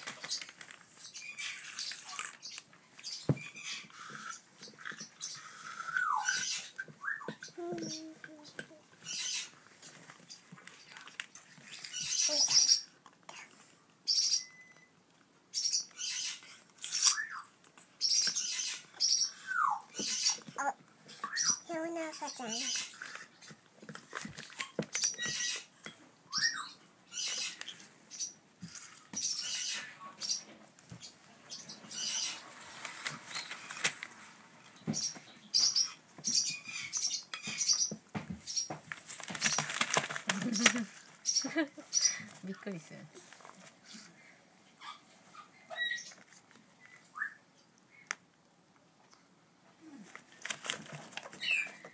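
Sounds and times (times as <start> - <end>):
parrot chicks begging calls: 1.1 - 8.1, 9.0 - 9.6, 11.7 - 12.9, 15.5 - 23.6, 26.3 - 28.4, 29.2 - 32.8.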